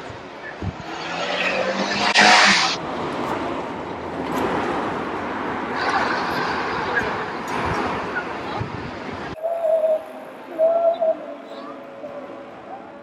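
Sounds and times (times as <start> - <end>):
vehicle passing close by: 0.6 - 8.1.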